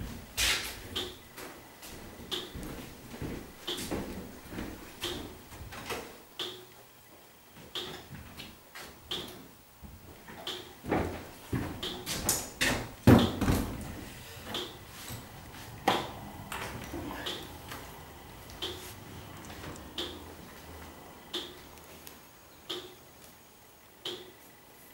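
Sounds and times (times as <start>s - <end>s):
footsteps on wooden floor: 0.8s - 5.9s, 9.8s - 21.7s
chair knocking on wooden floor: 10.8s - 17.5s.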